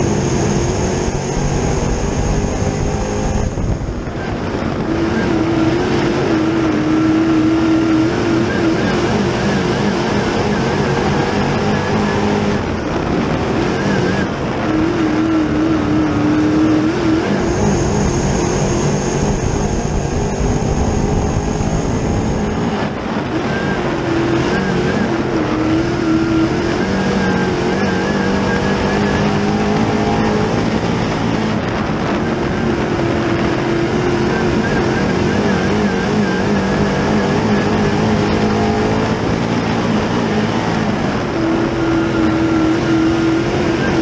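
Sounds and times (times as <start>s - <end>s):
thin high whine: 0.0s - 4.5s, 15.0s - 31.6s
race car engine revving: 0.0s - 44.0s.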